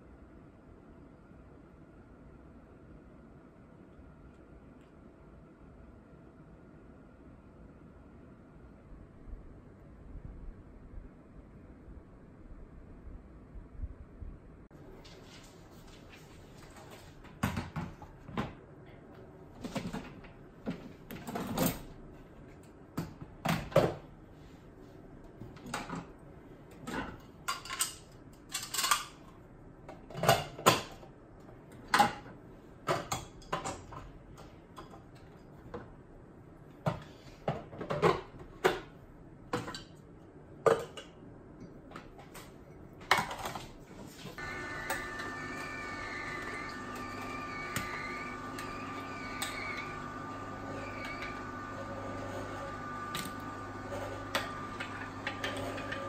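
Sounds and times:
kitchenware clicking and clattering: 25.6s - 31.1s, 31.8s - 35.6s, 36.8s - 39.0s, 40.6s - 41.2s, 42.0s - 44.2s.

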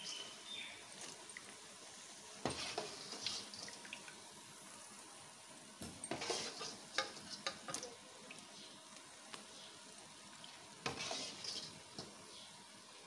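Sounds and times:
oil sizzling: 0.0s - 13.0s
metal skimmer scraping pan: 2.4s - 3.7s, 6.0s - 8.0s, 10.8s - 12.2s.

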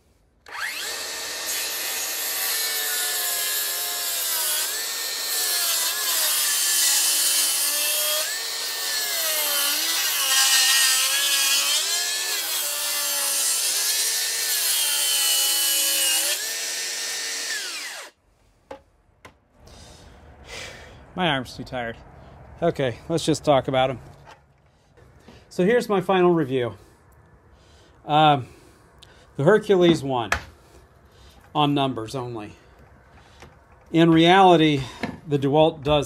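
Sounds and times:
circular saw cutting wood: 0.4s - 18.2s.

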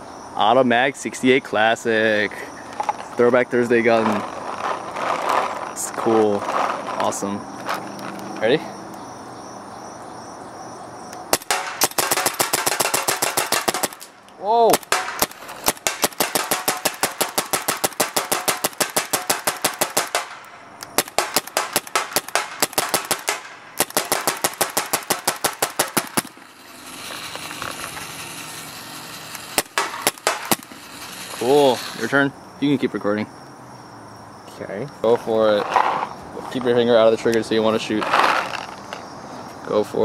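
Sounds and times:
paintball marker rapid shots: 11.3s - 32.0s.

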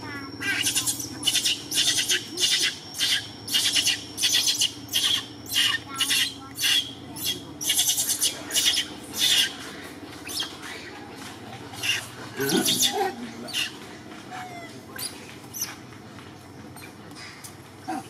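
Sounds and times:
monkey screaming shrill squeals: 0.4s - 9.6s, 10.2s - 10.9s, 11.7s - 15.8s.

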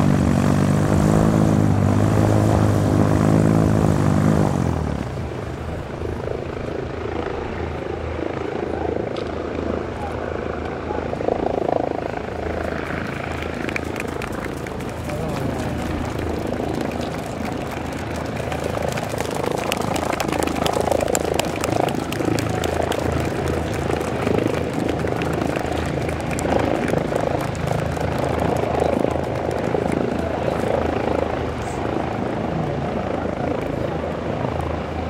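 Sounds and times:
aircraft engine drone: 0.0s - 35.0s.

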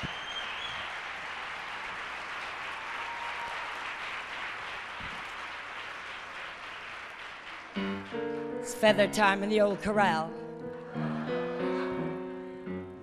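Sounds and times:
audience applauding: 0.0s - 8.5s.

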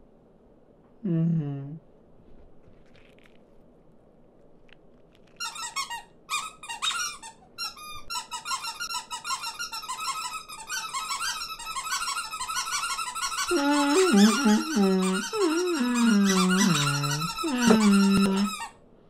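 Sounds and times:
cartoon birds chattering and squawking: 13.2s - 18.5s
deeper cartoon bird voice: 13.5s - 18.5s.

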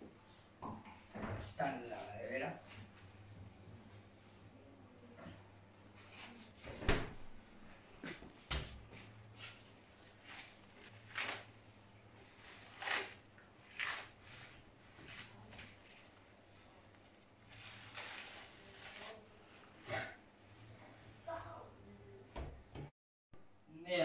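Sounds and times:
plastic wrap crinkling: 9.5s - 16.2s, 16.9s - 19.8s.

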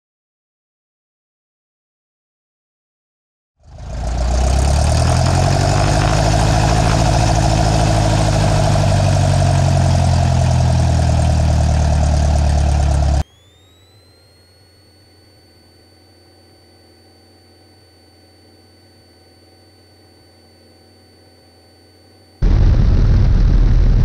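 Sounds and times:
airplane propeller engine running: 3.6s - 14.8s, 22.4s - 24.0s
faint high rising whine: 3.6s - 24.0s.

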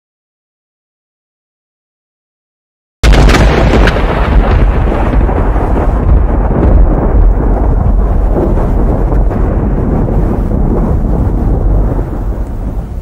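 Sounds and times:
deep thunder-like rumble: 3.0s - 13.0s.

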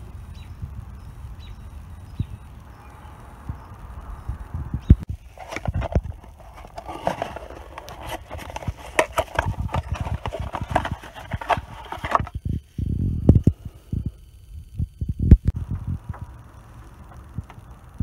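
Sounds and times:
cardboard box being opened: 5.3s - 12.4s
packaging crinkling: 5.3s - 12.4s.

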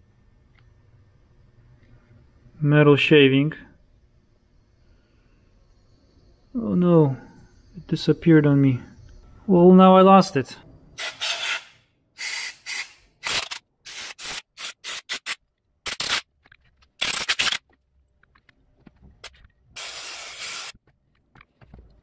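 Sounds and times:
compressed air blow gun hissing: 19.8s - 20.8s.

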